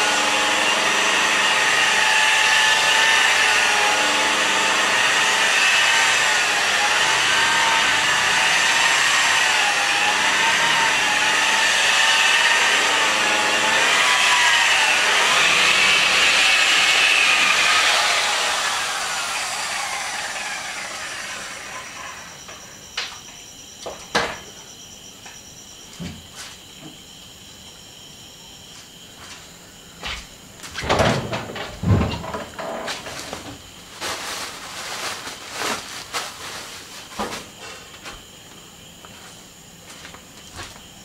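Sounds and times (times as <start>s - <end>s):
electric polisher whining: 0.0s - 22.7s.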